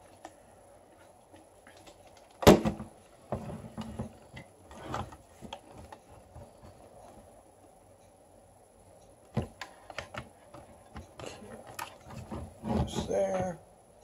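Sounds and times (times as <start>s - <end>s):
plastic rubbing: 10.0s - 13.2s.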